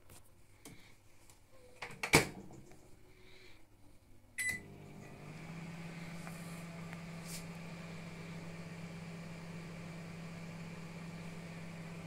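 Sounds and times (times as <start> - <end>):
control panel beep: 4.4 - 4.7
microwave oven humming: 4.4 - 12.0.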